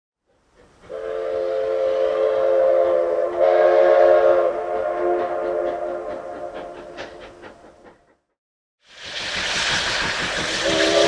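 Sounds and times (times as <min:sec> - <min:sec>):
steam locomotive whistle: 0:00.9 - 0:07.1, 0:10.4 - 0:11.0.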